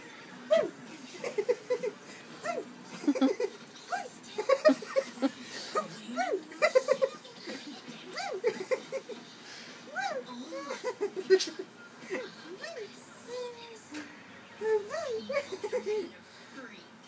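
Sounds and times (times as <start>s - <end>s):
people giggling: 1.0s - 2.1s, 2.9s - 9.4s, 10.5s - 12.4s, 15.3s - 16.1s.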